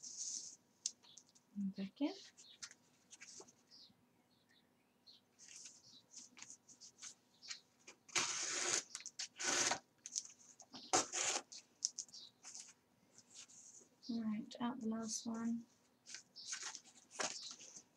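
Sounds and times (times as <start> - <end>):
card rustling: 2.3 - 3.6, 5.4 - 13.6, 16.0 - 17.9.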